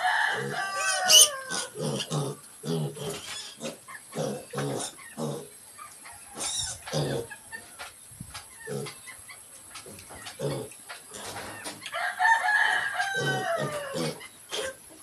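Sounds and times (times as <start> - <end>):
piglets grunting: 0.2 - 5.6, 6.3 - 7.4, 8.6 - 9.0, 9.9 - 11.4, 13.1 - 15.0.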